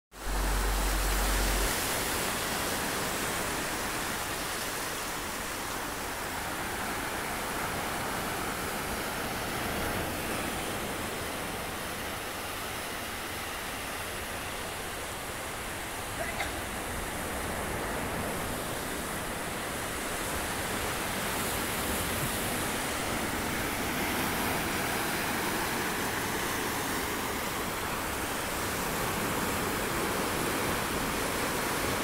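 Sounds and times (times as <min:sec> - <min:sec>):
low rumble: 0:00.1 - 0:04.0
ocean surf breaking: 0:00.2 - 0:32.0.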